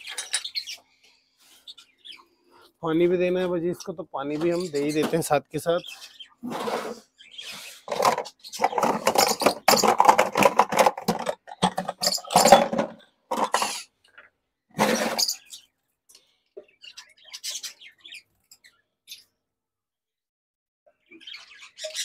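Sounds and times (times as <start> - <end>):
bowls and bucket clattering: 7.9 - 14.2, 14.8 - 15.5.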